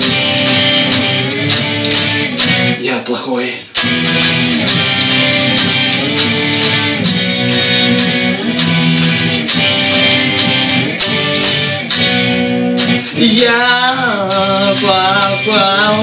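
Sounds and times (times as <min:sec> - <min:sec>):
electric guitar strummed chords: 0:00.0 - 0:03.0, 0:03.6 - 0:16.0
man singing: 0:13.1 - 0:16.0.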